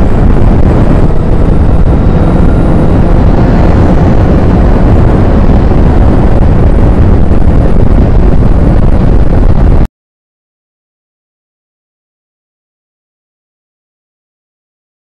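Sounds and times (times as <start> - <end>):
motorcycle engine running: 0.0 - 9.9
wind buffeting microphone: 0.0 - 9.9.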